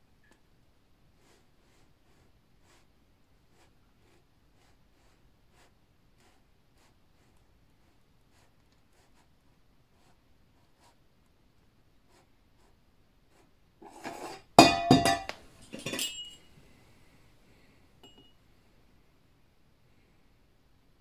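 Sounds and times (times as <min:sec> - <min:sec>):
metal tin scraping on book: 0:13.8 - 0:15.0
metal tin clattering on wooden table: 0:13.8 - 0:16.4.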